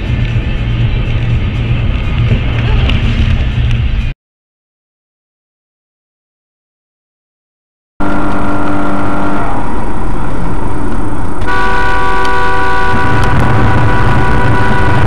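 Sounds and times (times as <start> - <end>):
engine and road noise rumble: 0.0 - 4.2, 8.0 - 15.0
car horn: 11.4 - 15.0.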